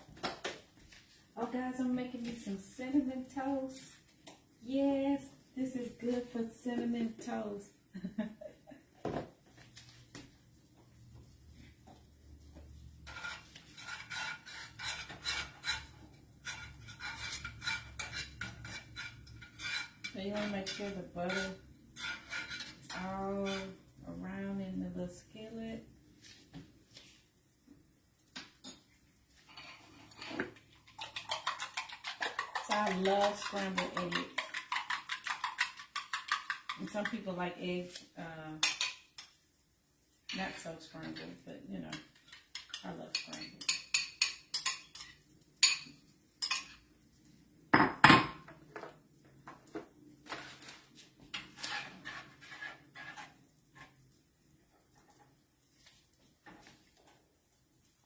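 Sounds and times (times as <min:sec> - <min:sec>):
utensil scraping pan: 0:13.0 - 0:25.6, 0:29.4 - 0:39.0, 0:50.2 - 0:54.0
utensils clinking on bowl: 0:29.5 - 0:37.3
kitchenware clinks and knocks: 0:47.8 - 0:48.9.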